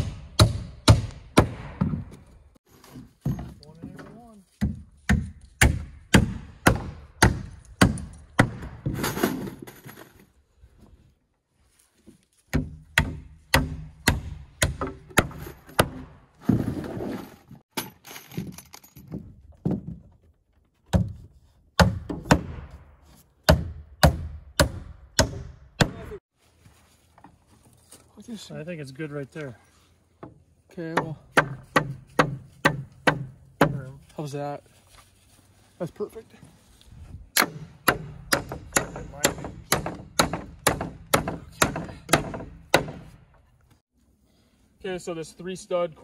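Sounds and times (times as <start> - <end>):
hammer driving nails into wood: 37.4 - 43.2.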